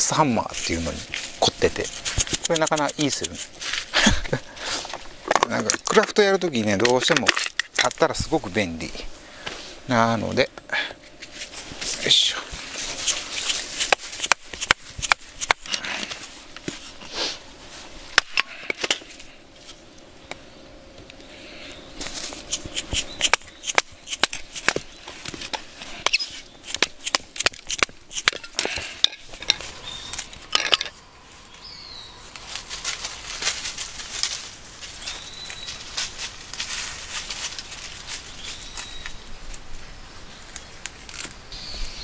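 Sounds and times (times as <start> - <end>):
hammer knocking hatchet through wood: 2.2 - 3.5.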